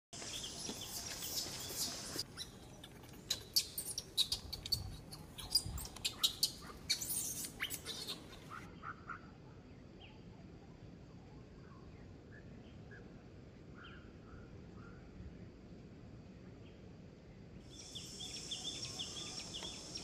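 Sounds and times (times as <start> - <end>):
baby monkey squeaking: 0.8 - 8.7
steady high hiss: 17.7 - 20.0.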